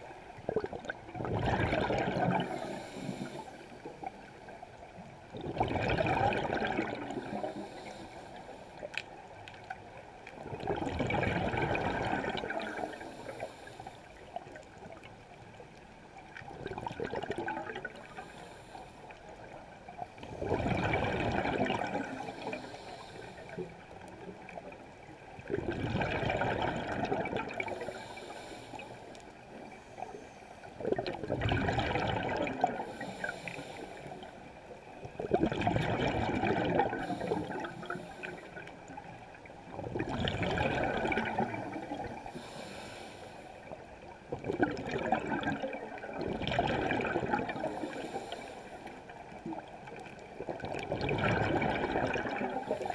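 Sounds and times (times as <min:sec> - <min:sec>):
diver exhaling bubbles: 0:00.5 - 0:03.4, 0:05.4 - 0:07.8, 0:10.5 - 0:13.1, 0:20.3 - 0:22.8, 0:25.5 - 0:27.9, 0:30.8 - 0:33.2, 0:35.2 - 0:38.0, 0:39.8 - 0:42.4, 0:44.3 - 0:48.0, 0:50.5 - 0:52.9.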